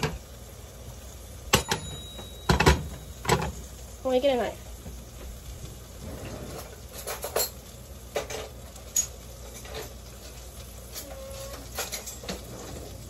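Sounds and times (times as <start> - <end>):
metal cutlery clinking: 11.7 - 12.5.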